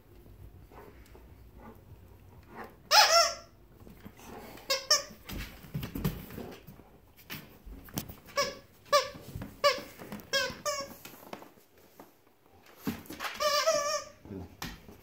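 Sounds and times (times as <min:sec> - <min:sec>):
dog toy squeaking: 0:02.9 - 0:03.5, 0:08.3 - 0:11.0, 0:13.3 - 0:14.2.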